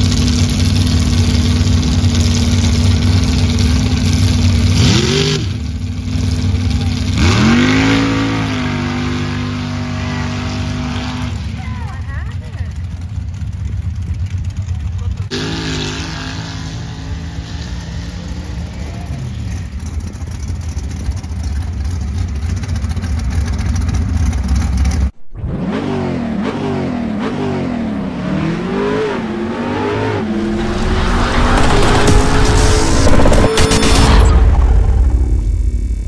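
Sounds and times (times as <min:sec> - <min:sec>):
race engine droning and revving: 0:00.0 - 0:11.6, 0:15.2 - 0:36.0
rising sound effect: 0:25.2 - 0:26.4, 0:27.8 - 0:36.0.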